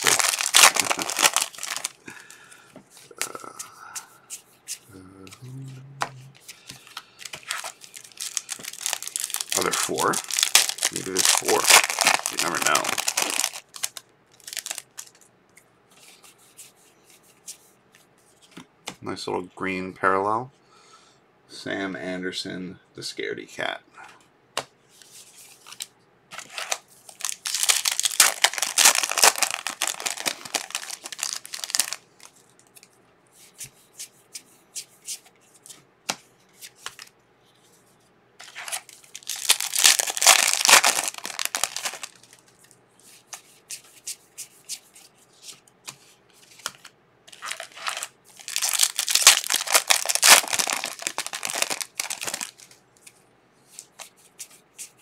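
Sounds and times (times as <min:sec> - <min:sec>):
foil wrappers tearing and crinkling: 0:00.0 - 0:02.3, 0:07.2 - 0:15.2, 0:26.4 - 0:32.9, 0:38.4 - 0:42.6, 0:46.6 - 0:52.8.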